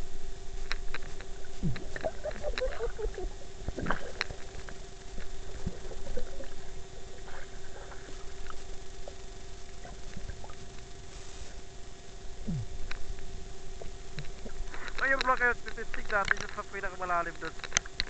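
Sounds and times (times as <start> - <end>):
steady low hum: 0.0 - 18.0
underwater clicks and knocks: 0.7 - 6.2
bubbly gurgles: 1.2 - 10.8.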